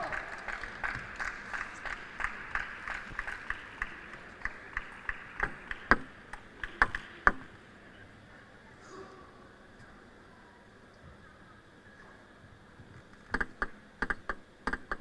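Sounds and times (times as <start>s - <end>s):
table tennis ball clicking: 13.3s - 15.0s.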